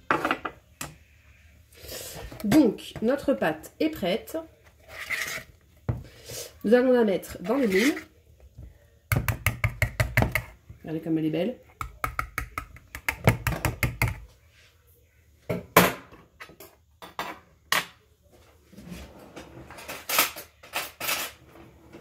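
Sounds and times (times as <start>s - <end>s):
dishes and utensils clattering: 19.3s - 22.0s.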